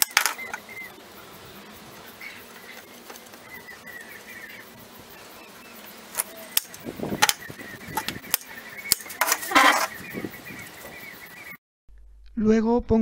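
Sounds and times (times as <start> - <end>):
rasping noise: 6.0 - 10.3.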